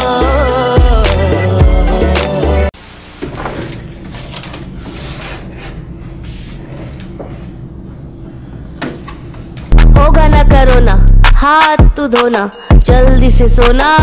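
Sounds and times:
steady low hum: 0:02.8 - 0:11.4
laptop and papers handling: 0:03.2 - 0:05.4.

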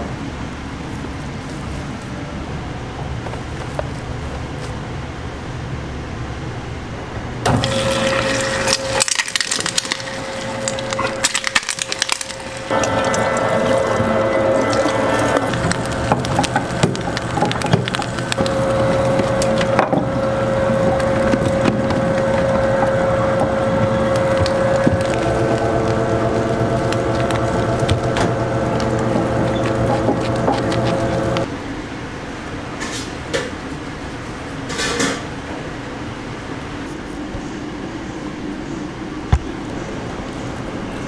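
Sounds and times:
machine humming: 0:06.9 - 0:31.5.

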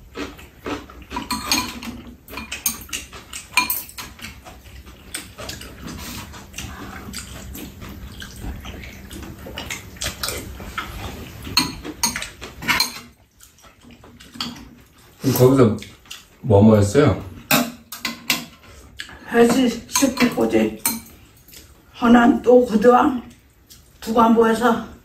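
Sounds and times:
eating noises: 0:00.0 - 0:25.0
spoons clicking against bowls: 0:01.1 - 0:04.4, 0:11.6 - 0:13.1, 0:17.5 - 0:21.7.

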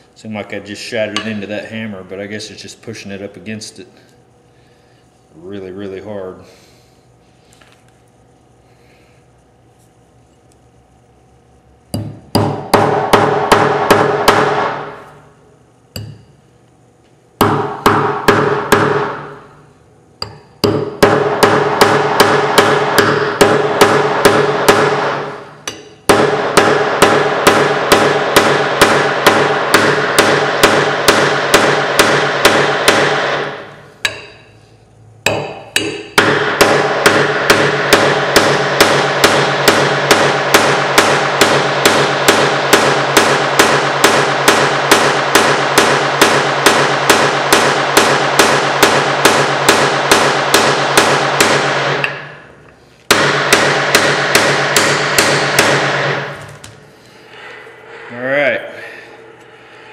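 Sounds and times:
hammer blows ringing: 0:20.2 - 0:34.5, 0:35.2 - 0:52.4, 0:53.1 - 0:56.4.

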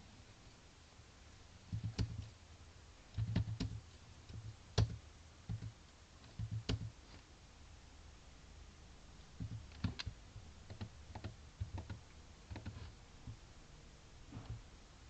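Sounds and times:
computer keyboard typing: 0:01.7 - 0:02.3, 0:03.2 - 0:07.0, 0:09.4 - 0:12.8.

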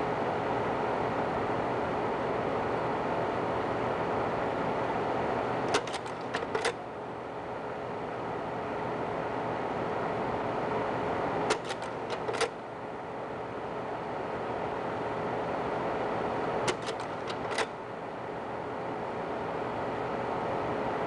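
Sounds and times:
slide projector fan hum: 0:00.0 - 0:21.0
slide-change mechanism clacking: 0:05.7 - 0:06.8, 0:11.5 - 0:12.6, 0:16.7 - 0:17.8.

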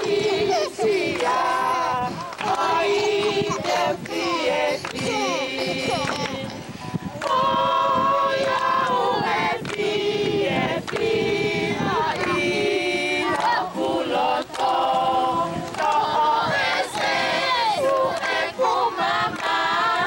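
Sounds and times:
hand claps: 0:00.0 - 0:06.6, 0:07.2 - 0:11.1, 0:13.3 - 0:13.6, 0:14.4 - 0:14.8, 0:15.6 - 0:17.2, 0:17.8 - 0:19.8
group singing in harmony: 0:00.0 - 0:20.0.

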